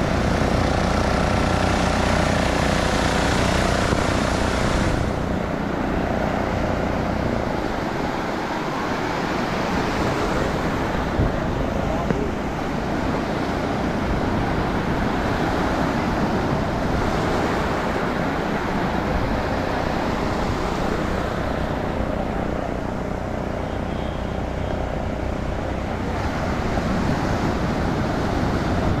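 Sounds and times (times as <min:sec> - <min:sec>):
motorboat engine running: 0:00.0 - 0:29.0
wind and water rushing: 0:00.0 - 0:29.0.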